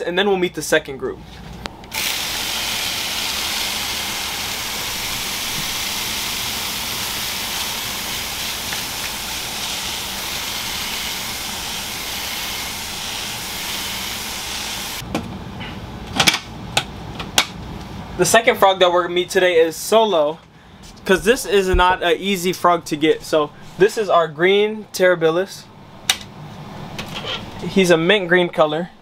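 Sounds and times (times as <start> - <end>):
water mister spraying hiss: 2.0 - 15.0.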